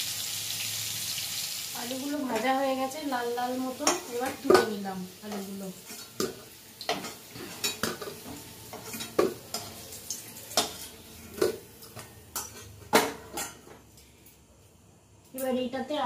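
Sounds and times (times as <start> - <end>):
oil sizzling: 0.0 - 13.6
metal utensil clinking on a pan: 3.8 - 9.8, 12.3 - 13.7.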